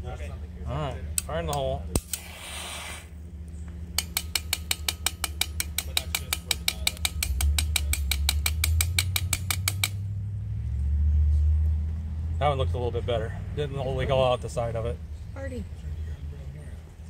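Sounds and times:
steady low hum: 0:00.0 - 0:17.0
rapid mechanical clicking: 0:04.0 - 0:10.0.

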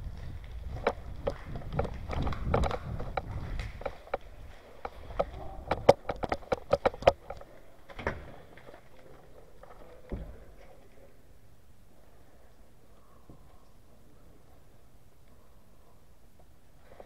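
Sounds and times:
footsteps on concrete floor: 0:00.0 - 0:05.5
sharp clicks and scrapes: 0:00.7 - 0:07.5.

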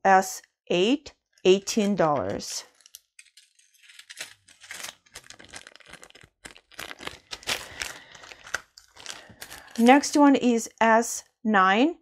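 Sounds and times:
plastic bags crinkling: 0:02.2 - 0:10.2.

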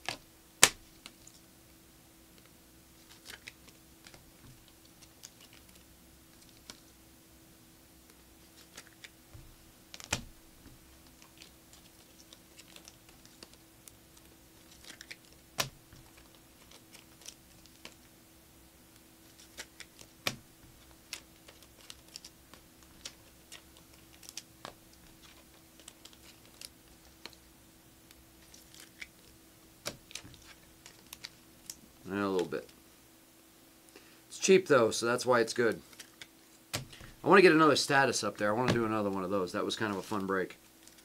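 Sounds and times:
cards snapping: 0:00.0 - 0:01.3, 0:03.1 - 0:05.8, 0:08.1 - 0:18.1, 0:19.2 - 0:27.4, 0:28.1 - 0:31.8, 0:35.8 - 0:37.2
faint steady hum: 0:00.0 - 0:41.0
trading cards clicking and tapping: 0:38.6 - 0:38.9.

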